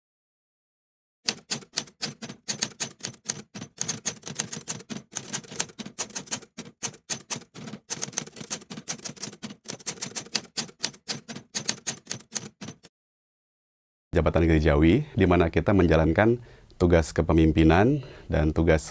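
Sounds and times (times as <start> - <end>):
typewriter keys clattering: 1.3 - 12.9.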